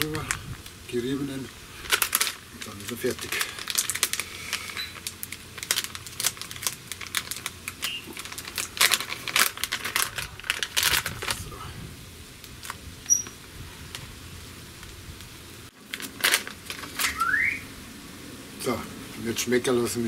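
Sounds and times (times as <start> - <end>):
plastic packet crinkling: 1.0 - 11.5, 15.8 - 17.3.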